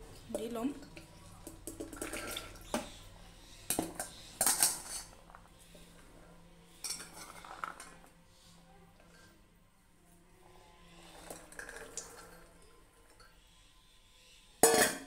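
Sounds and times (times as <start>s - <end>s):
chickpeas clattering into metal pot: 0.8s - 2.6s, 3.7s - 5.4s, 6.8s - 8.0s, 11.1s - 12.5s.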